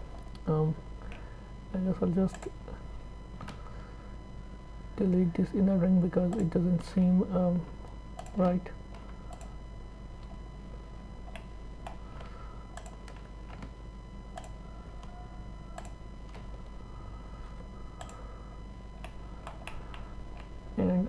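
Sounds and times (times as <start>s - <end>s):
steady electrical hum: 0.0s - 21.0s
computer mouse clicks: 8.2s - 9.6s, 12.7s - 13.7s, 14.3s - 15.1s, 15.7s - 16.5s, 18.0s - 18.2s, 19.0s - 20.5s.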